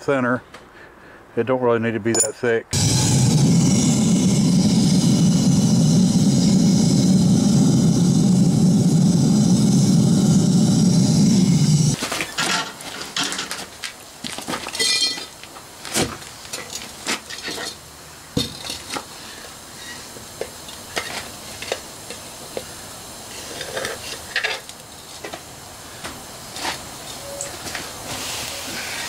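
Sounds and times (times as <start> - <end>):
metal crucible clinking: 2.1 - 2.4, 14.8 - 15.3
hot metal sizzling on sand: 2.8 - 12.0, 18.4 - 25.4, 28.1 - 29.0.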